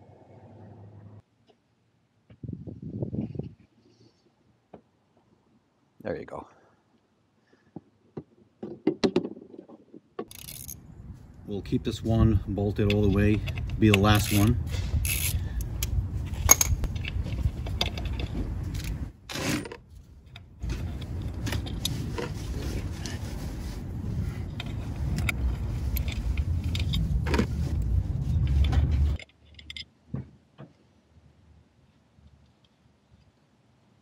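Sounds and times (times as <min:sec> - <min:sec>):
metal tools clinking and scraping: 0:10.3 - 0:10.8, 0:12.7 - 0:15.4
steady low rumble: 0:10.5 - 0:19.3, 0:20.0 - 0:29.2.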